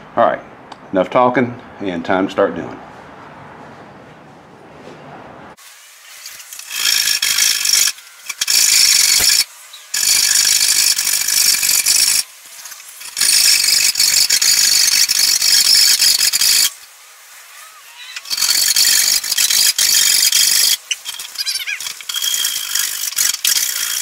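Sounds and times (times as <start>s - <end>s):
saw cutting wood: 5.6s - 24.0s.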